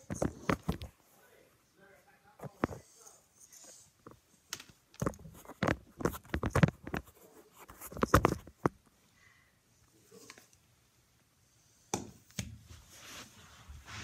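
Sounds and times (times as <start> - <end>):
headphones handling clicks and rustles: 0.0 - 1.0, 4.0 - 8.9.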